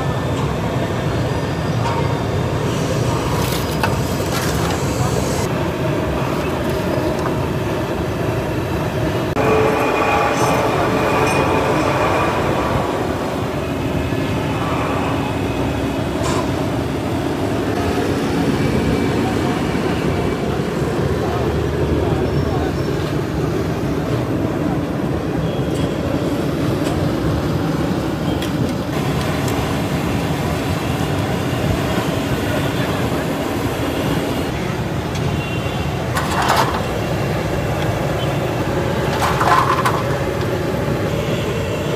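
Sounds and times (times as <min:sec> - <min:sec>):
roadside traffic rumble: 0:00.0 - 0:41.9
background voices: 0:09.3 - 0:15.6.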